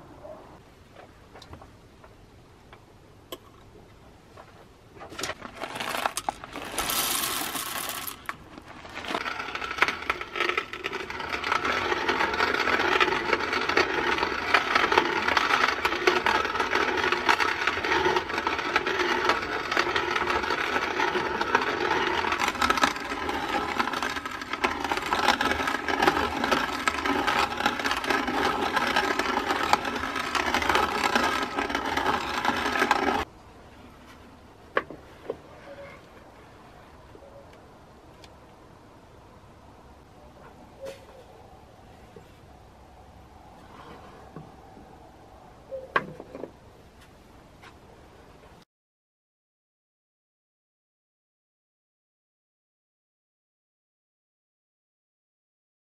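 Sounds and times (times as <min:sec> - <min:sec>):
hand coffee grinder grinding: 0:05.1 - 0:33.3
coffee beans poured into hopper: 0:05.2 - 0:33.3.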